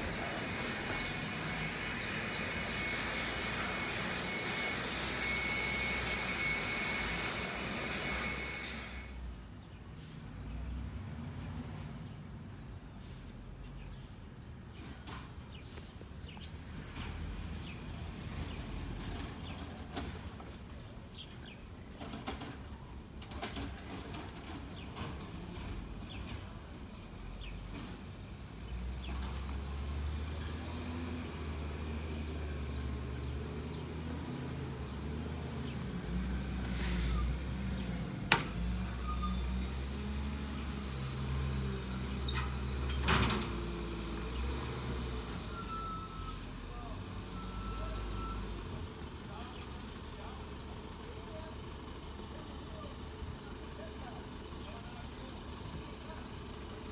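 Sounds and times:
rushing noise: 0:00.0 - 0:09.2
garbage truck engine rumbling: 0:14.2 - 0:56.9.

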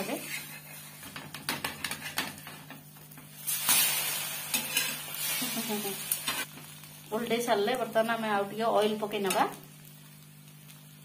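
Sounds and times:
spatula scraping a pan: 0:00.0 - 0:02.6, 0:04.5 - 0:05.2
omelette sizzling on a pan: 0:00.0 - 0:11.0.

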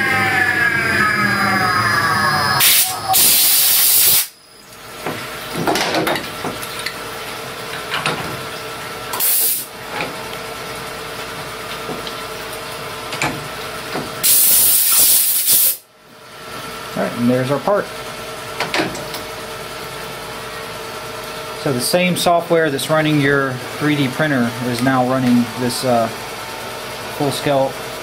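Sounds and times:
machining centre humming: 0:00.0 - 0:15.0, 0:15.8 - 0:28.0
compressed air blasts hissing: 0:02.6 - 0:04.4, 0:09.2 - 0:09.7, 0:14.2 - 0:15.8.

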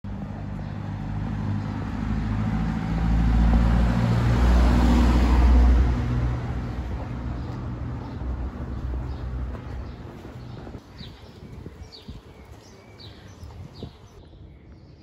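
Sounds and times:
vehicle passing by: 0:00.1 - 0:10.8.

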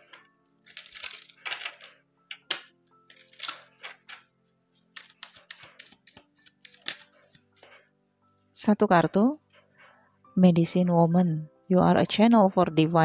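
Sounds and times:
soft background music: 0:00.0 - 0:13.0
cards being shuffled: 0:00.7 - 0:01.9, 0:03.1 - 0:07.7.

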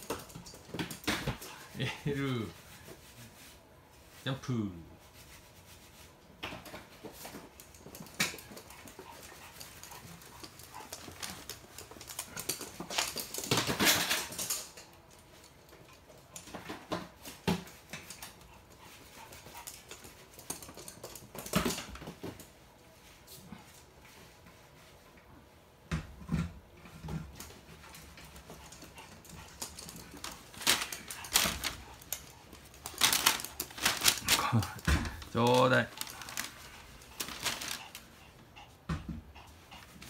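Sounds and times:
dogs scuffling: 0:05.0 - 0:25.0, 0:26.8 - 0:38.6
dog claws clicking on wooden floor: 0:07.3 - 0:16.6, 0:17.7 - 0:22.5, 0:27.3 - 0:38.0.

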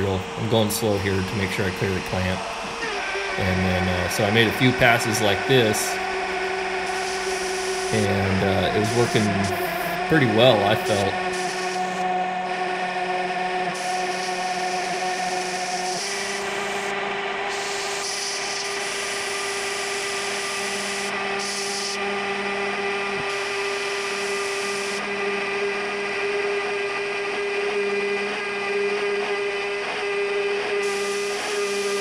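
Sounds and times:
router spindle cutting aluminum: 0:00.0 - 0:12.2, 0:13.4 - 0:32.0
compressed-air blow gun hissing: 0:02.5 - 0:12.0, 0:13.7 - 0:16.9, 0:17.5 - 0:22.0.

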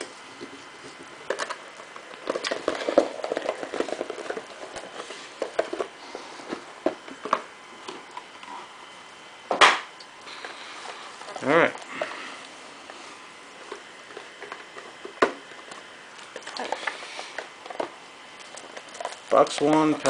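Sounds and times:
cardboard rustling and scraping: 0:02.3 - 0:08.7.

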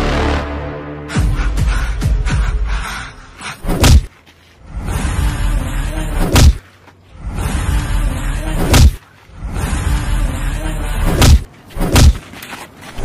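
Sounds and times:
background music: 0:00.0 - 0:03.5
heavy punch impacts: 0:03.7 - 0:04.1, 0:06.2 - 0:06.6, 0:08.6 - 0:09.0, 0:11.1 - 0:12.2.

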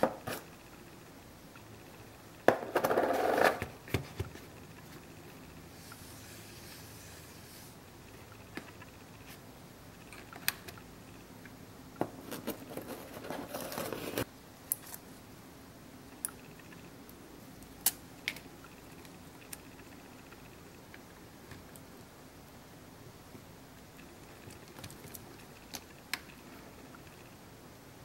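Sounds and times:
rustling and scraping: 0:12.2 - 0:14.3.

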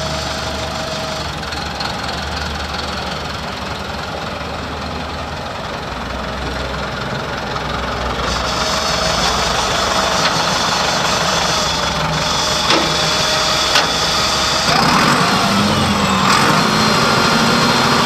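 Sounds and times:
tractor diesel engine idling: 0:00.0 - 0:18.0.

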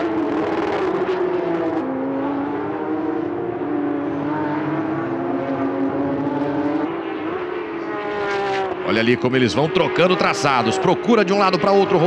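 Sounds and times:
race car engine accelerating: 0:00.0 - 0:12.0.

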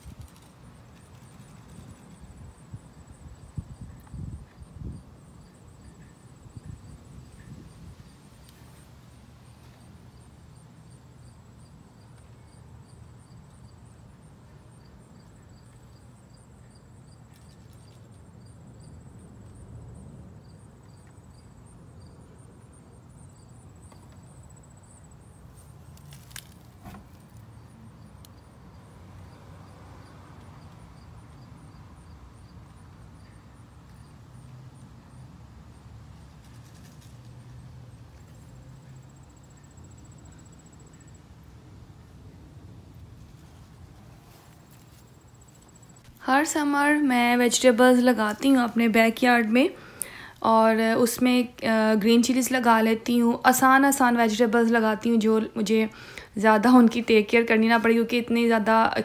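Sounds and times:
crickets chirping: 0:00.0 - 0:59.0.

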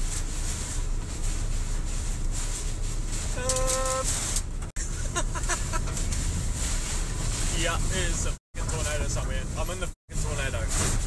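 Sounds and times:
wind and rain battering truck: 0:00.0 - 0:11.0
short held cry: 0:03.3 - 0:04.1
brief voice fragments: 0:03.4 - 0:04.1.

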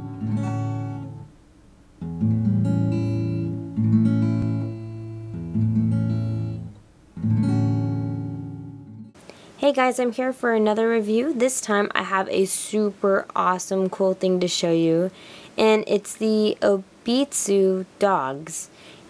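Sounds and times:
acoustic guitar strummed chords: 0:00.0 - 0:09.2.

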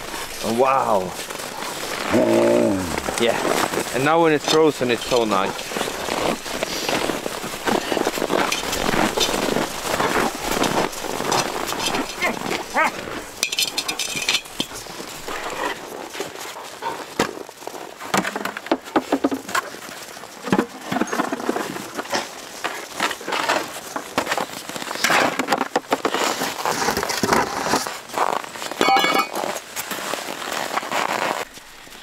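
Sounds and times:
knocks and clatter: 0:18.1 - 0:19.7.

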